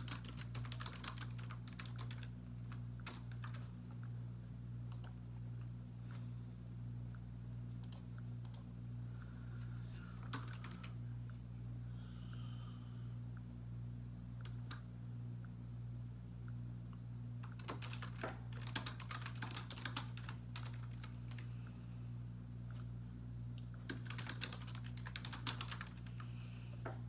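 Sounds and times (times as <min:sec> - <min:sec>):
typing on computer keyboard: 0:00.0 - 0:03.7, 0:10.3 - 0:10.9, 0:17.4 - 0:21.4, 0:23.9 - 0:26.2
steady low hum: 0:00.0 - 0:27.0.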